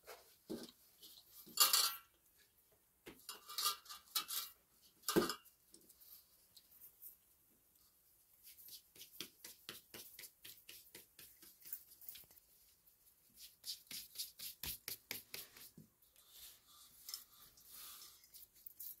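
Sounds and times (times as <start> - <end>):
hands patting bread dough: 8.4 - 12.4, 13.3 - 15.9.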